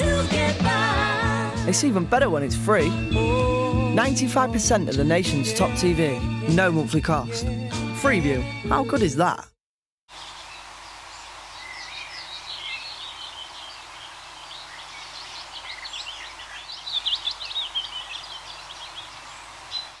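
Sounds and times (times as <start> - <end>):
background hiss: 10.1 - 20.0.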